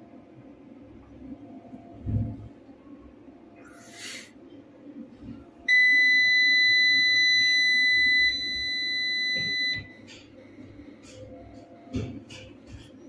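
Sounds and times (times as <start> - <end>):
high-pitched buzzer beep: 5.7 - 10.0.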